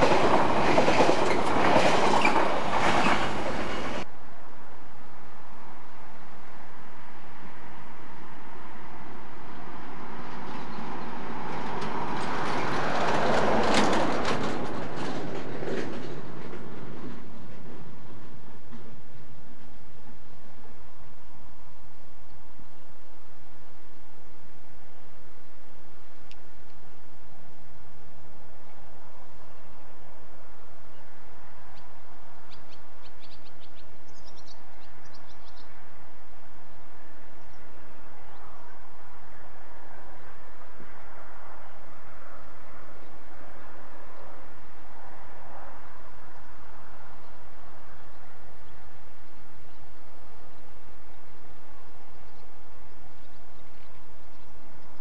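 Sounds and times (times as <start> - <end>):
wheels clicking over rail joints: 0.0 - 4.1, 10.3 - 19.0
wheels rumbling: 0.0 - 4.1, 6.8 - 32.5
diesel locomotive engine humming: 0.0 - 32.4
small birds chirping: 32.5 - 35.8.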